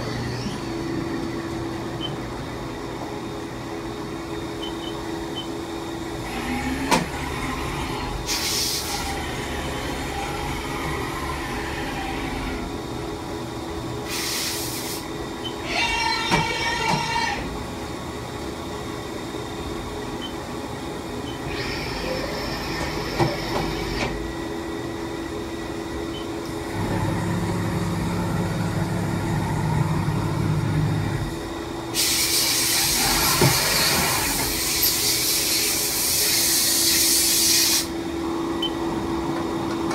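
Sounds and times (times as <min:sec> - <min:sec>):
machine humming: 0:00.0 - 0:14.0, 0:15.1 - 0:39.9
machine hissing: 0:08.2 - 0:09.2, 0:14.0 - 0:15.1, 0:31.9 - 0:38.0.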